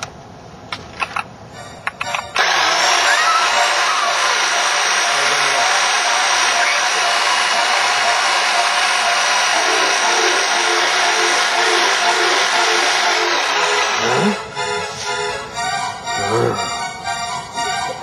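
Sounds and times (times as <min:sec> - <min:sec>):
hedge trimmer buzzing: 0:02.3 - 0:14.8.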